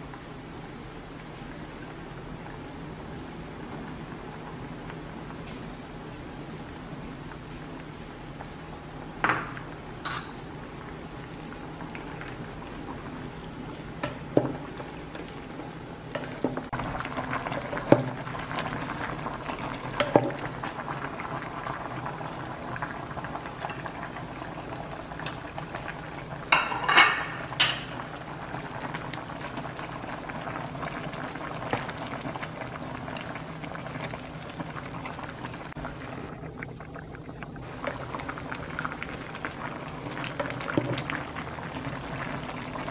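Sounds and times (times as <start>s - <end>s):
soup boiling and bubbling: 0.0s - 42.9s
pot clinks and knocks: 9.3s - 10.4s.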